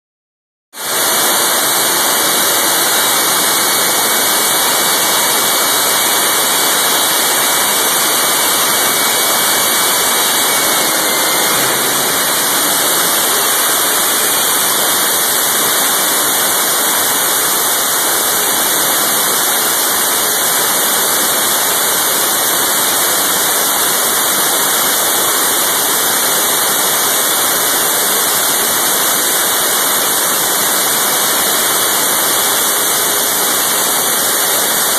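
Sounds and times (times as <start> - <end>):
jet engine roaring: 1.5 - 16.5.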